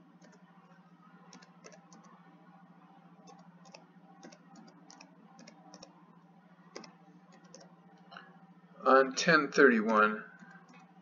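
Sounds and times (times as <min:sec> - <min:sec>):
low steady hum: 0:00.0 - 0:11.0
computer keyboard typing: 0:01.3 - 0:02.1, 0:03.2 - 0:05.9, 0:06.7 - 0:07.7.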